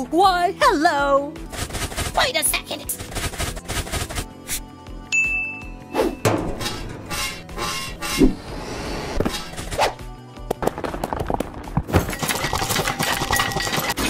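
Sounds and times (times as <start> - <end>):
background music: 0.0 - 14.0
high ringing ding: 5.1 - 6.3.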